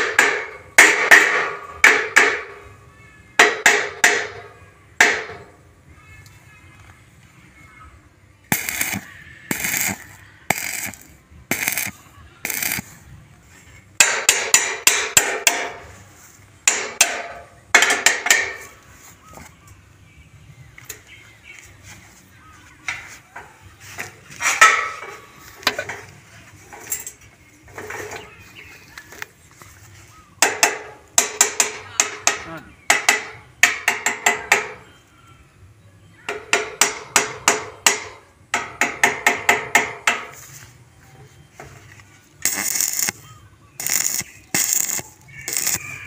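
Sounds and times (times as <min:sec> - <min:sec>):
hammer striking steel tube: 0:00.0 - 0:02.5, 0:03.4 - 0:04.4, 0:05.0 - 0:05.4, 0:08.5 - 0:11.9, 0:12.5 - 0:12.9, 0:14.0 - 0:15.8, 0:16.6 - 0:18.7, 0:30.4 - 0:34.8, 0:36.5 - 0:40.4.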